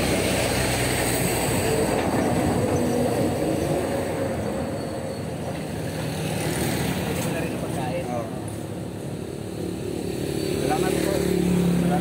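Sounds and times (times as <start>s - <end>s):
vehicle passing by: 5.6s - 12.0s.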